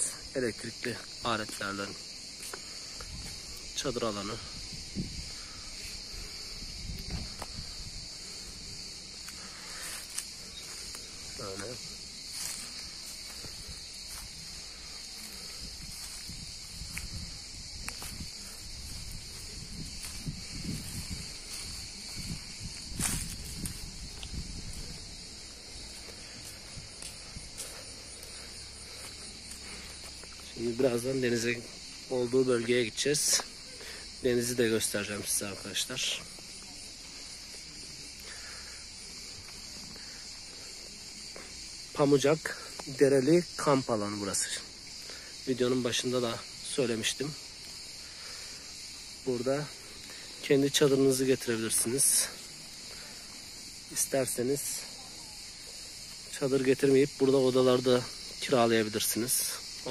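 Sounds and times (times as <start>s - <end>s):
cicadas chorus: 0.0s - 59.9s
insects droning: 0.0s - 59.9s
footsteps on dry leaves: 1.0s - 32.1s.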